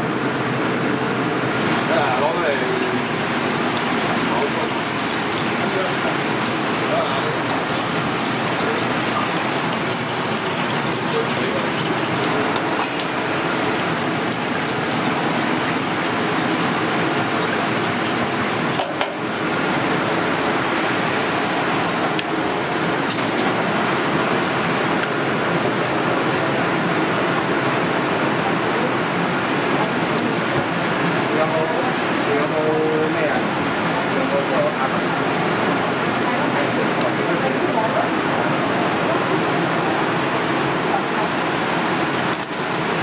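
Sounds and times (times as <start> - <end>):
food sizzling in hot oil: 0.0 - 27.5.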